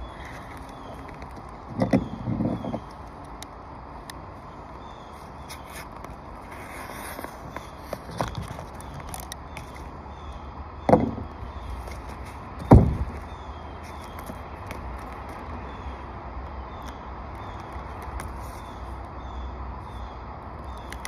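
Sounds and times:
knocks and thumps on roof: 0:12.6 - 0:13.1.

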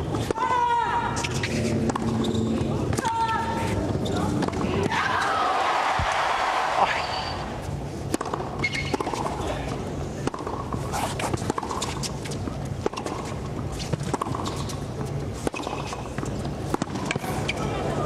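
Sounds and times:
rackets striking tennis ball: 0:01.2 - 0:05.4, 0:08.0 - 0:17.7
faint crowd murmur: 0:16.1 - 0:18.0.

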